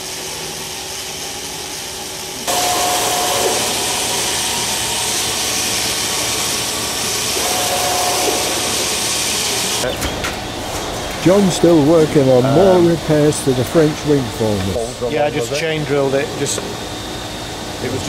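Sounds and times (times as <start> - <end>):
drill whine: 0.3 - 18.0
power drill whirring: 2.4 - 14.6.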